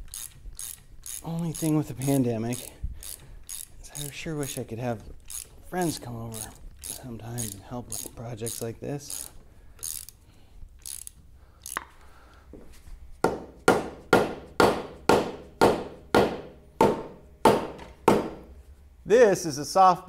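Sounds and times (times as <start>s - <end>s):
mallet striking steel: 13.3s - 18.5s.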